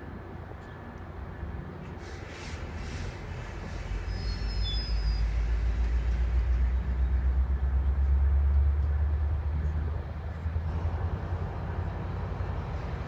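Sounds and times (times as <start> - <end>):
train coaches rumbling on rails: 0.0 - 13.0
high squeal: 4.1 - 5.3.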